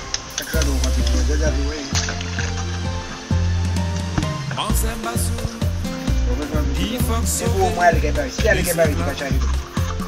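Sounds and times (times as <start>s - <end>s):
background music with strong bass: 0.0s - 10.0s.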